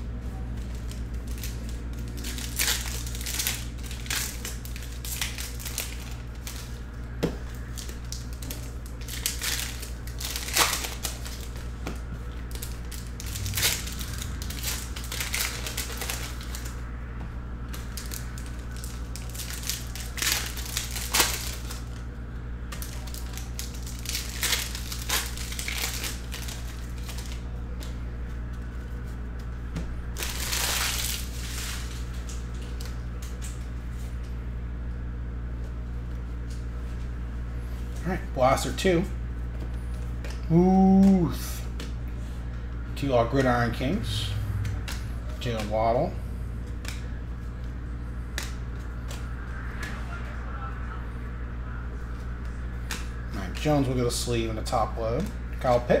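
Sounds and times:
foil wrappers tearing and crinkling: 0:00.6 - 0:06.8, 0:07.6 - 0:11.7, 0:12.4 - 0:16.8, 0:17.7 - 0:22.0, 0:22.7 - 0:27.6, 0:30.1 - 0:33.6.

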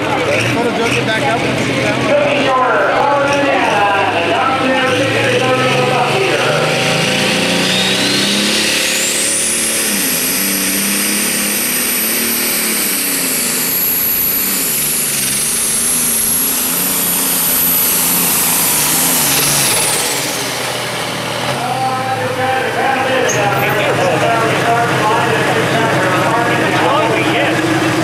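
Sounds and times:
diesel tractor engine under load: 0:00.0 - 0:28.0
turbo whistle: 0:07.5 - 0:15.2.

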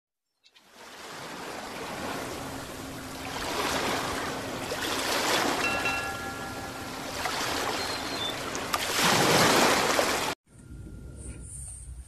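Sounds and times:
ocean surf washing in: 0:00.7 - 0:10.4.

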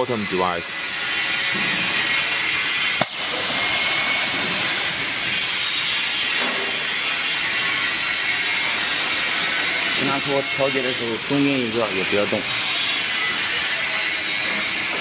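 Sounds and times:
machinery hissing: 0:03.0 - 0:07.2.

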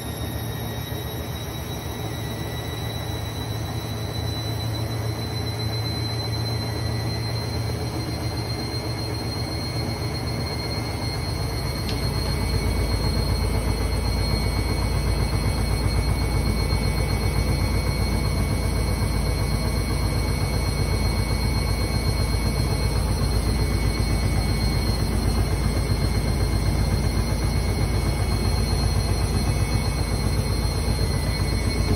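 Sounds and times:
washing machine drum churning: 0:06.9 - 0:31.9.

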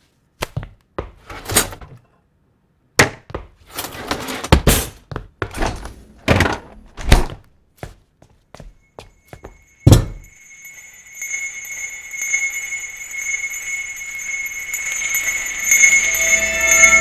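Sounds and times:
bell-like ringing drone: 0:08.7 - 0:17.0.

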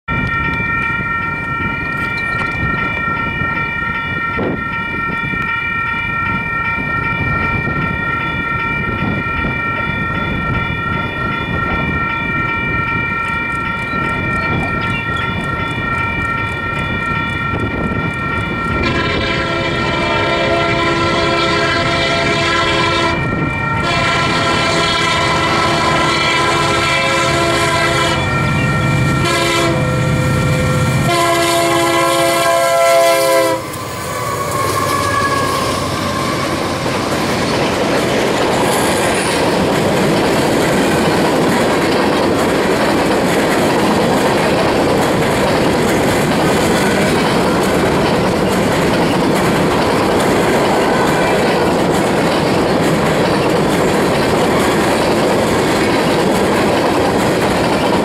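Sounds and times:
train rumbling past: 0:00.1 - 0:58.0
locomotive air horn: 0:18.8 - 0:28.6, 0:29.2 - 0:36.7
wheels clacking over rail joints: 0:33.7 - 0:58.0.

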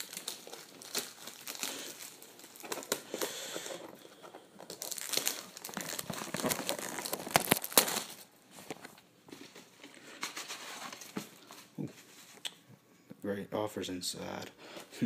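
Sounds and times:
plastic wrap crackling: 0:00.0 - 0:09.0.

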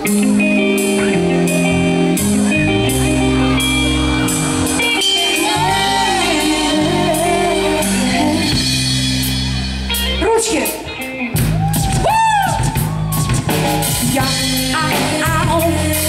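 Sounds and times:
rock band playing: 0:00.0 - 0:16.0
woman singing: 0:05.0 - 0:08.8, 0:14.0 - 0:16.0.

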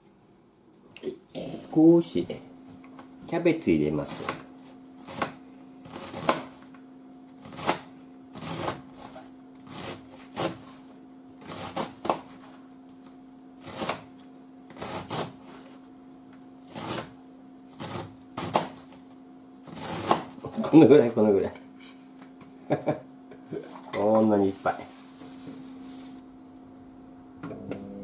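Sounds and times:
steady low hum: 0:00.0 - 0:28.0
knife cutting cabbage: 0:04.0 - 0:06.7, 0:07.3 - 0:15.9, 0:16.6 - 0:19.0, 0:19.6 - 0:20.6.

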